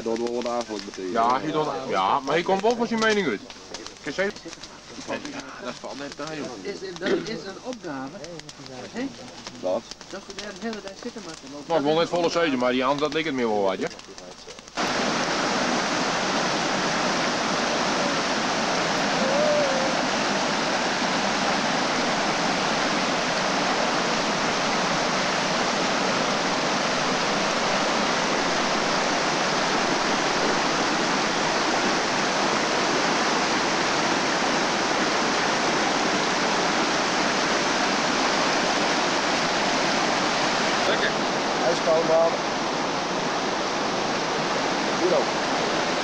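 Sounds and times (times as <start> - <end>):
stream rushing over rocks: 9.2 - 46.0.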